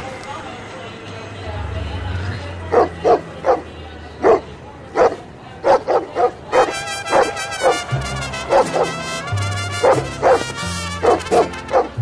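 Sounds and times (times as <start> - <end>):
dog barking: 2.7 - 9.1, 9.7 - 12.0
background music: 6.6 - 12.0.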